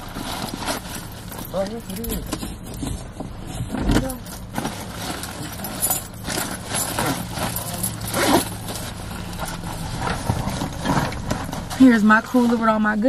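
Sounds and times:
steady low hum: 0.0 - 13.0
small clinks: 5.2 - 8.5.

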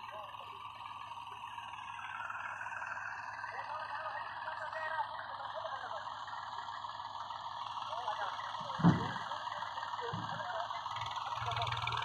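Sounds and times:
tractor engine idling: 0.0 - 12.0
men talking: 3.5 - 6.2, 7.8 - 12.0
loud thump: 8.8 - 9.2.

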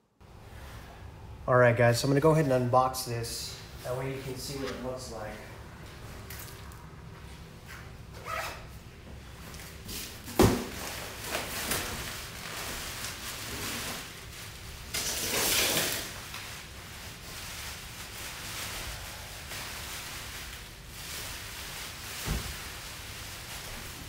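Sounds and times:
plastic wrap crinkling: 9.6 - 24.0.

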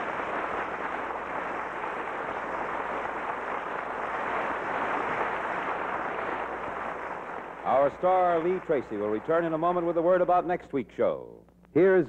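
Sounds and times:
sea rushing: 0.0 - 8.6.

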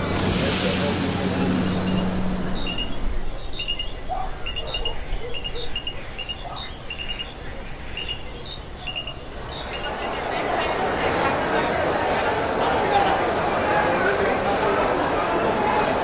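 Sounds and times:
high-pitched insect drone: 1.3 - 10.4
cricket-like chirps: 1.5 - 10.7.

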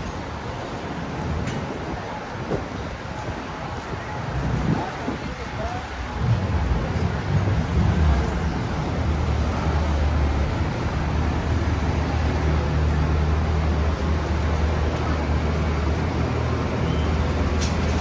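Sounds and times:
street traffic: 0.0 - 18.0
vehicle engine hum: 5.6 - 18.0.

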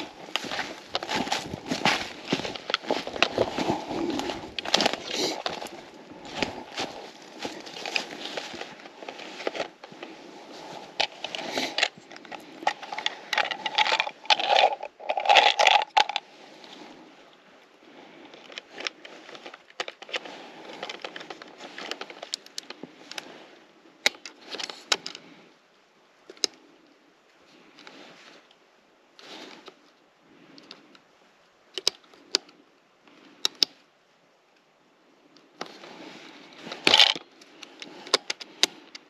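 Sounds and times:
rustling and scraping handling: 0.0 - 17.2, 18.1 - 25.4, 27.5 - 28.6, 29.2 - 31.0, 35.6 - 39.0.

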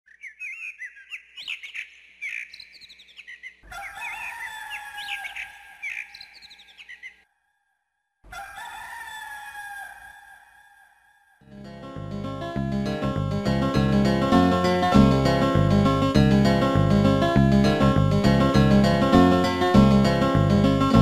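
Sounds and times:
small birds chirping: 0.1 - 7.2.

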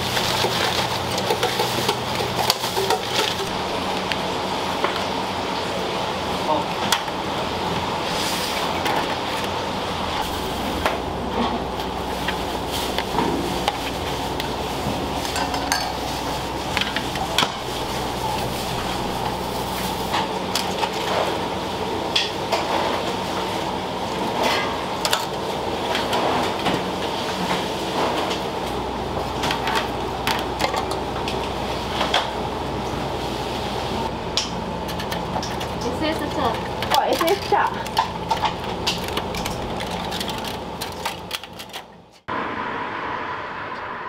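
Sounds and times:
utensils and dishes clattering: 0.0 - 3.8, 10.2 - 21.4, 34.4 - 42.0
machine hum: 0.0 - 44.0.

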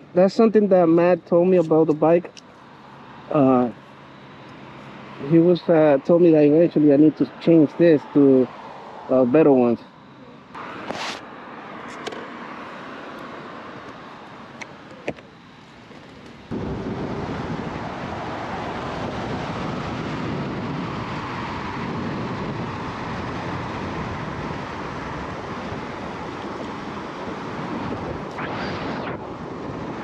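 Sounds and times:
wind noise on microphone: 16.5 - 30.0.

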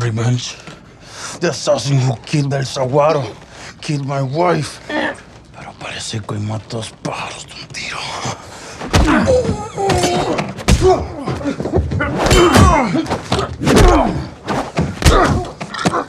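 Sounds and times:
people grunting and crying out: 8.8 - 16.0
punches and thuds: 8.8 - 16.0.

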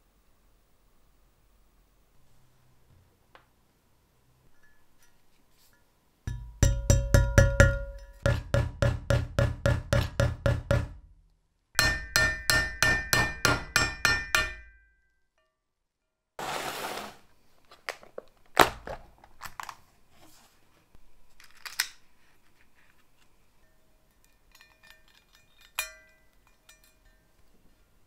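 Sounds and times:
hammer ringing on steel punch: 6.3 - 11.0, 11.8 - 15.0
mallet tapping rivets: 6.3 - 11.1, 11.8 - 14.8.

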